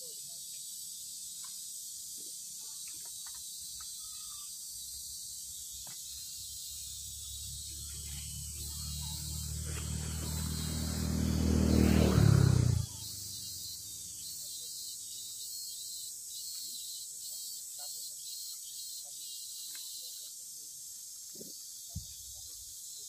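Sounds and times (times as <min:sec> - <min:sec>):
high insect hiss: 0:00.0 - 0:23.0
low engine hum: 0:07.2 - 0:13.1.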